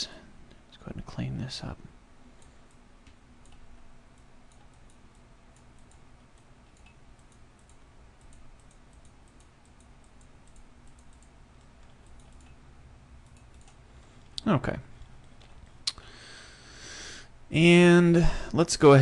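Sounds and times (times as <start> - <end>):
low steady hum: 0.0 - 19.0
computer mouse clicks: 2.4 - 12.6, 13.2 - 13.8.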